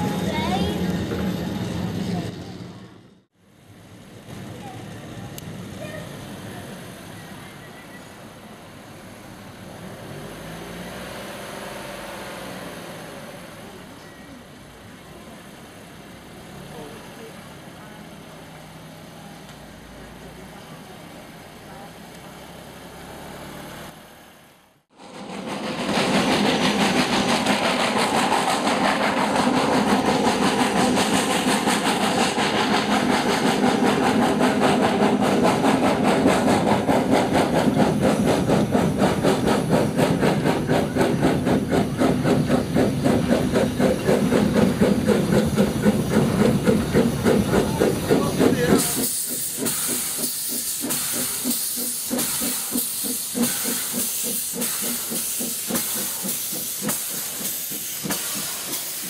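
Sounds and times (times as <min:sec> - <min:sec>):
train running noise: 0:00.0 - 0:59.0
steam locomotive exhaust beating: 0:24.9 - 0:59.0
steam hissing: 0:25.0 - 0:59.0.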